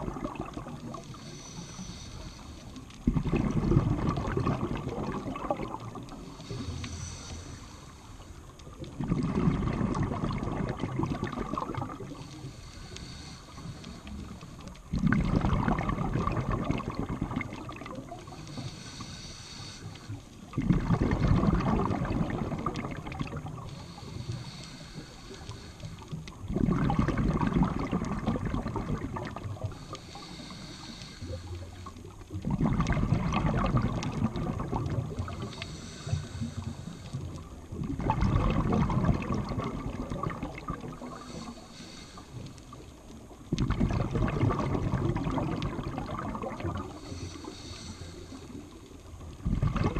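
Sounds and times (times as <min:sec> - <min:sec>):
bubbling exhaled air underwater: 0:00.0 - 0:19.2, 0:19.8 - 0:49.9
regulator inhale hiss: 0:00.9 - 0:03.1, 0:06.1 - 0:08.6, 0:12.0 - 0:14.9, 0:18.1 - 0:20.5, 0:23.4 - 0:26.4, 0:29.5 - 0:32.2, 0:34.8 - 0:37.7, 0:40.7 - 0:43.4, 0:46.8 - 0:49.2.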